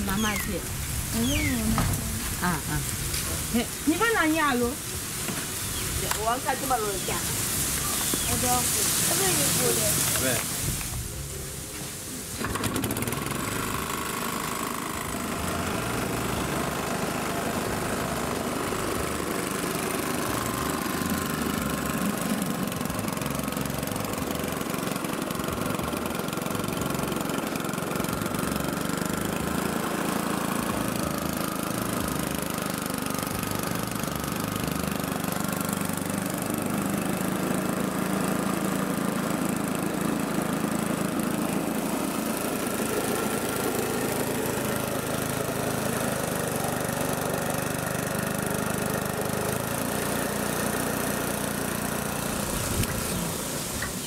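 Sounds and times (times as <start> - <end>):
small petrol engine running: 0.0 - 54.0
engine pull-start cord: 12.3 - 15.4.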